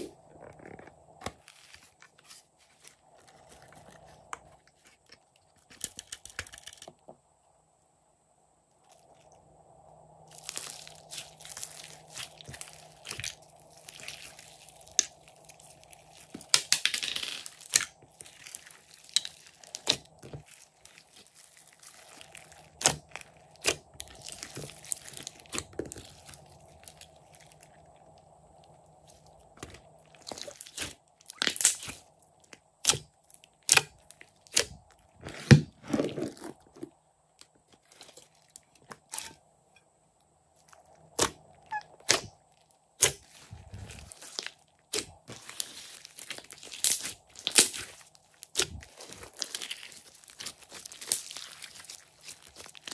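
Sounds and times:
sticky slime crackling and popping: 10.3s - 36.6s, 43.0s - 52.9s.

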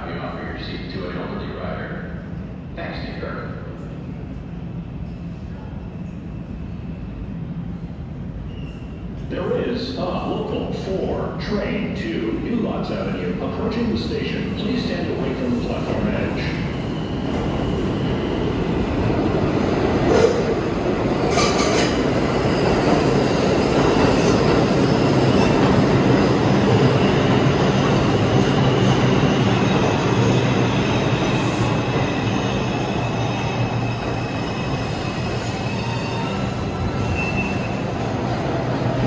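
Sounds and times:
subway train rumble: 0.0s - 39.0s
high wheel squeal: 32.4s - 38.0s.

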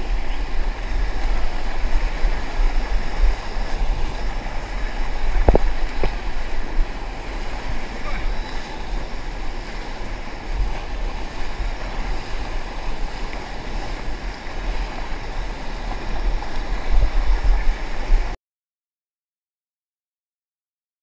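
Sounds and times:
whitewater churning and rushing: 0.0s - 18.4s.

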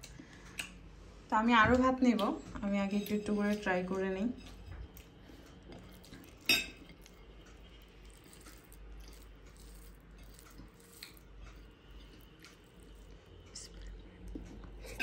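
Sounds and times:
fingers mixing rice on plate: 4.5s - 14.5s
clink on ceramic plate: 6.4s - 6.8s.

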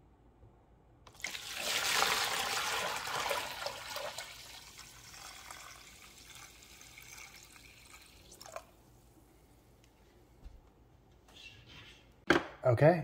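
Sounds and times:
liquid pouring and splashing: 1.1s - 8.8s.

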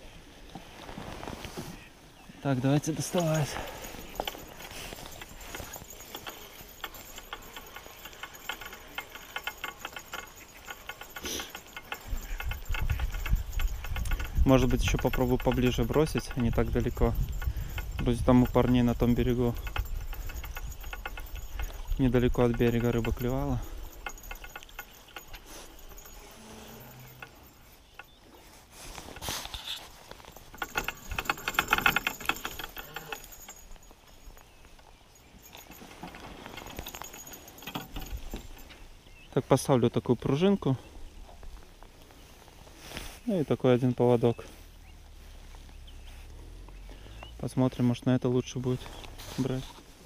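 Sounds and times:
short rustle: 0.0s - 39.8s, 40.4s - 50.0s
fishing reel ticking: 3.2s - 28.3s, 30.2s - 34.3s, 35.5s - 38.8s.

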